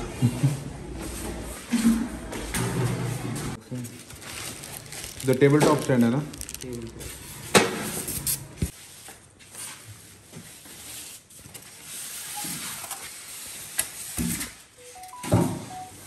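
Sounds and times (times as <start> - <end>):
packing material rustling: 3.6 - 8.5.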